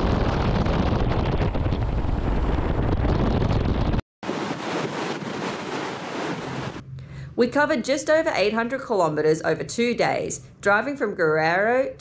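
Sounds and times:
wind buffeting microphone: 0:00.0 - 0:06.8
ocean surf breaking: 0:04.2 - 0:06.8.

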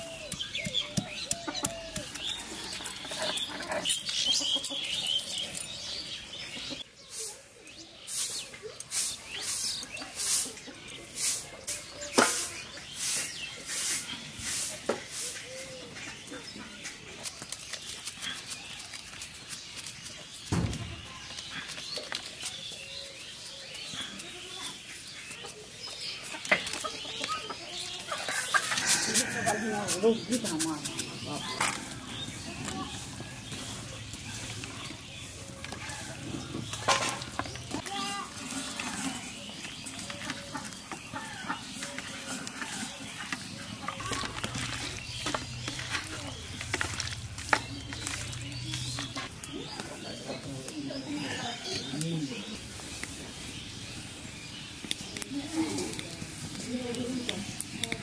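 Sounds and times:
chickens clucking: 0:00.0 - 0:18.5, 0:20.6 - 0:58.0
small birds chirping: 0:00.0 - 0:58.0
stone pestle pounding: 0:00.1 - 0:02.4.

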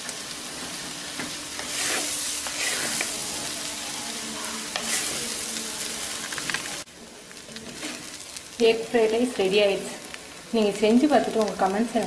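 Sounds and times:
rice sizzling in a pot: 0:00.0 - 0:12.0
ladle scraping food: 0:01.6 - 0:03.2.

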